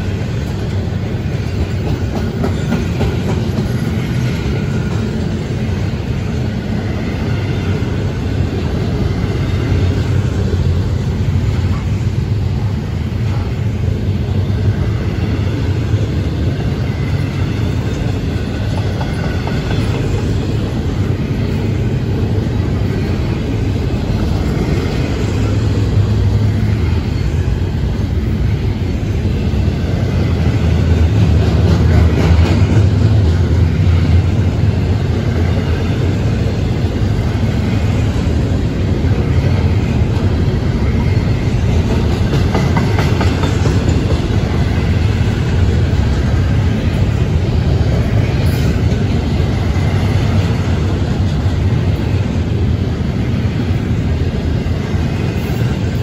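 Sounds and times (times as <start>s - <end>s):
train wheels rolling on rails: 0.0s - 56.0s.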